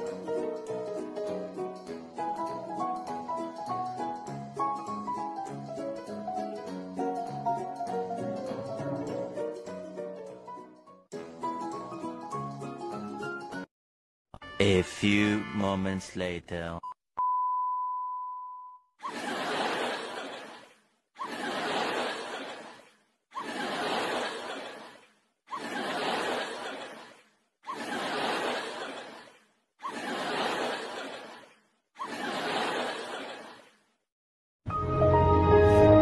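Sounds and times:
laughter sound effect: 19.0s - 20.4s.

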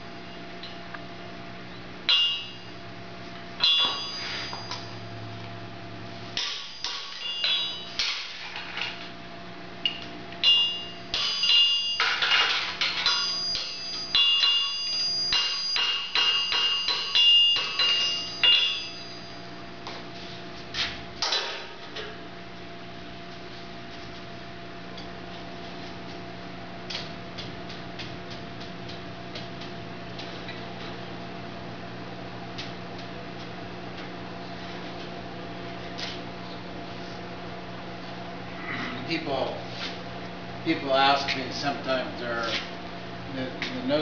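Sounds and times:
hammer striking horseshoe on anvil: 2.1s - 2.6s, 3.6s - 4.8s, 6.4s - 8.4s, 9.9s - 19.0s.

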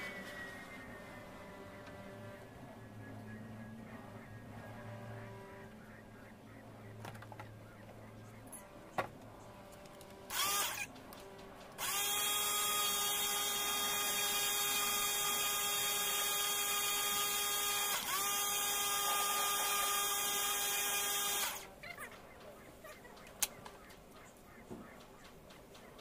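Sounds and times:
power tool motor running: 10.3s - 10.9s, 11.8s - 21.7s.

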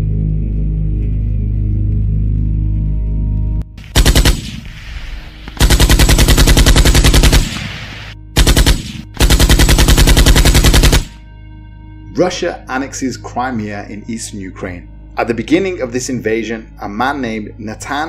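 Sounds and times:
low music drone: 0.0s - 18.0s
automatic gunfire: 3.8s - 4.7s, 5.6s - 7.8s, 8.4s - 11.2s.

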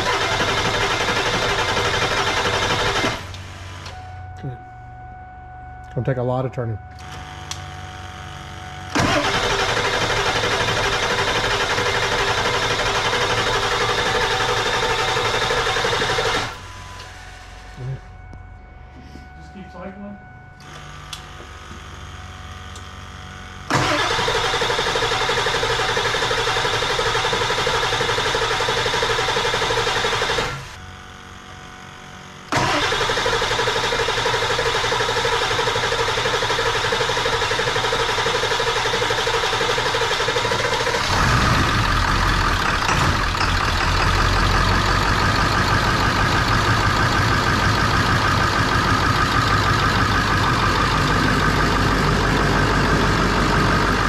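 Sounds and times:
diesel engine cranking: 0.0s - 4.5s, 8.8s - 18.2s, 23.5s - 30.8s, 32.5s - 54.0s
diesel engine running: 0.0s - 54.0s.

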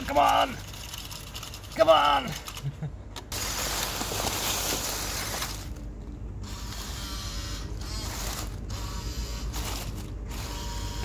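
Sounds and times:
toy truck motor whirring: 0.0s - 2.7s, 6.4s - 11.0s
leaves crackling under tyres: 3.3s - 5.9s, 7.8s - 8.7s, 9.4s - 10.5s.

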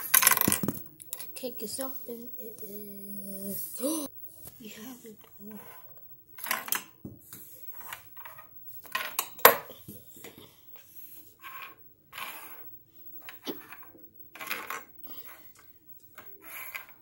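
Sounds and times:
plastic helmets clacking on wood: 0.0s - 0.9s.

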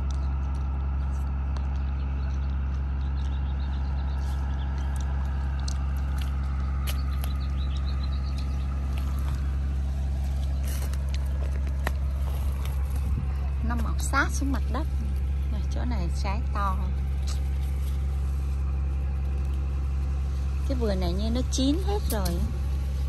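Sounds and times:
low machine hum: 0.0s - 23.0s
rustles: 4.1s - 15.8s, 16.8s - 23.0s.

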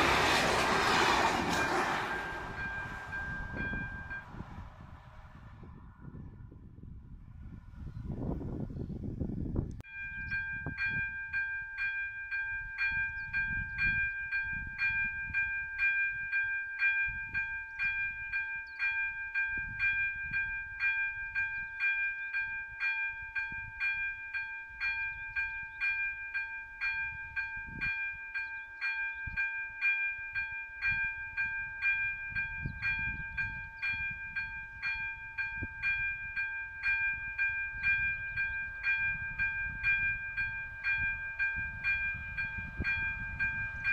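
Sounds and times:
wind rumble on microphone: 0.0s - 24.2s, 24.8s - 28.3s, 29.1s - 43.9s
level crossing bell ringing: 1.6s - 4.4s, 9.9s - 43.9s.

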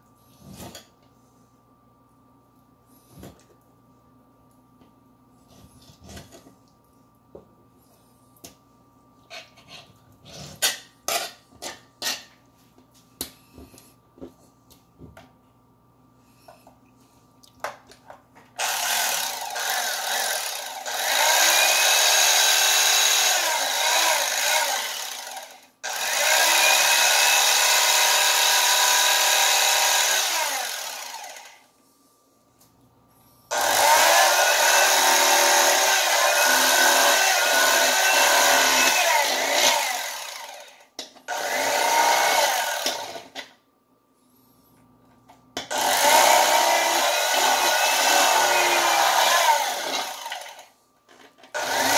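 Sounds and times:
electric knife buzzing: 18.6s - 31.7s, 33.5s - 43.4s, 45.8s - 50.7s, 51.6s - 51.9s.

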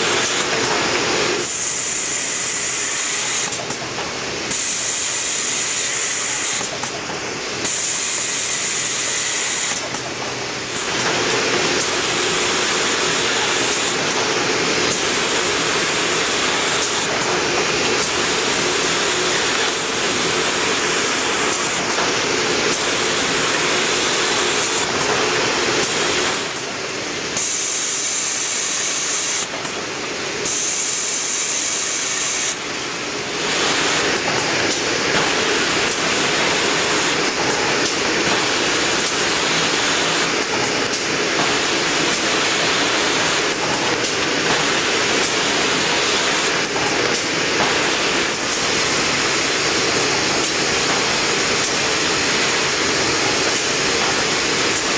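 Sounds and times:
machine hissing mechanical noise: 0.0s - 54.9s.

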